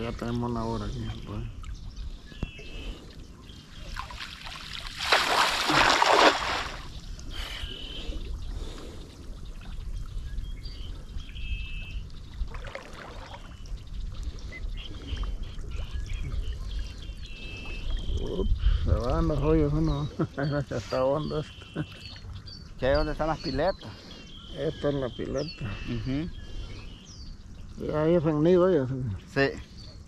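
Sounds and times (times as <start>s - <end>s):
water trickling: 0.0s - 7.3s, 8.0s - 23.7s
water splashing: 2.7s - 7.4s, 12.2s - 18.4s
bird chirping: 6.7s - 12.4s, 13.4s - 30.0s.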